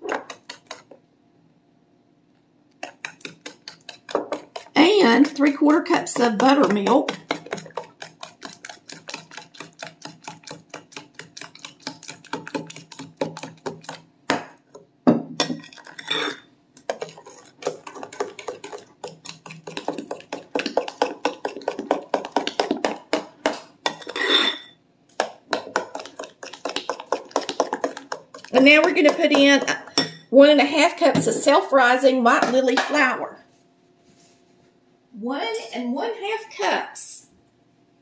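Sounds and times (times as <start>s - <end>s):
spoon clinking in glass bowl: 23.9s - 24.8s.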